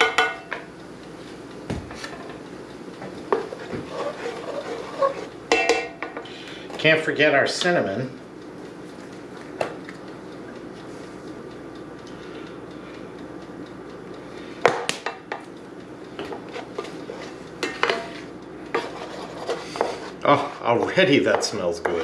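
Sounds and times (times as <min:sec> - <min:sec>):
spoon scraping a metal pan: 0:03.3 - 0:05.9, 0:16.4 - 0:20.6.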